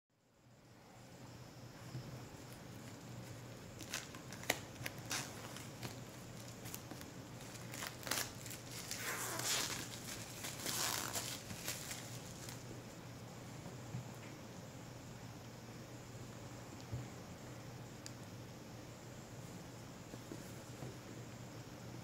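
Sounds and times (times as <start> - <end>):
plastic shrink-wrap tearing and crinkling: 3.8 - 12.6.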